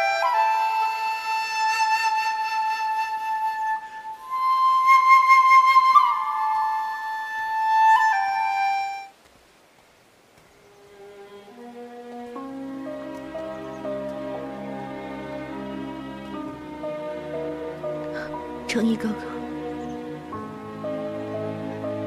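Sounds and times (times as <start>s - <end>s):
bamboo flute melody: 0.0s - 9.2s.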